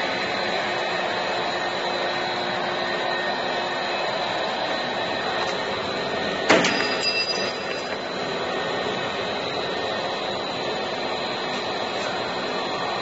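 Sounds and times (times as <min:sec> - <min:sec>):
machine rollers whirring: 0:00.0 - 0:13.0
thin high tone: 0:06.6 - 0:08.2.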